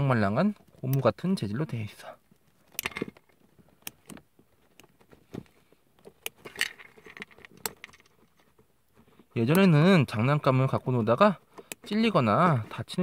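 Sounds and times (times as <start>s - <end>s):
light plastic rattling: 2.3s - 8.8s.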